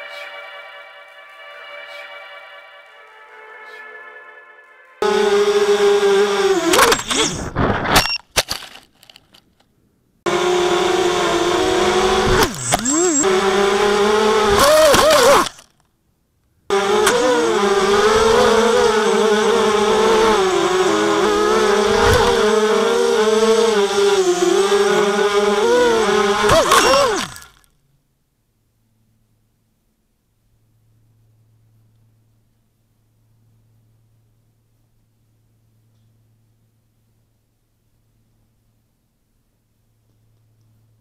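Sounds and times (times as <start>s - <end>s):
quadcopter motors whining: 5.0s - 8.1s, 10.3s - 15.8s, 16.7s - 27.7s.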